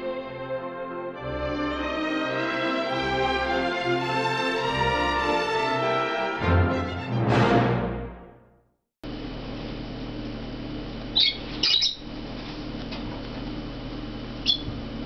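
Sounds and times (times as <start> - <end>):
steady low hum: 9.0 - 15.0
parrot chick chirping: 11.2 - 12.1, 14.4 - 14.8.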